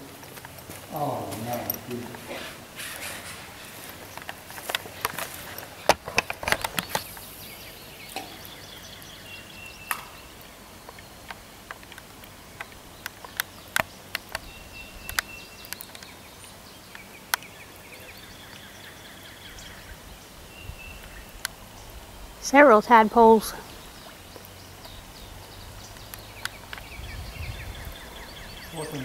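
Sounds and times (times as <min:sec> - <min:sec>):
background hiss: 0:00.0 - 0:29.0
sharp clicks: 0:10.9 - 0:16.2.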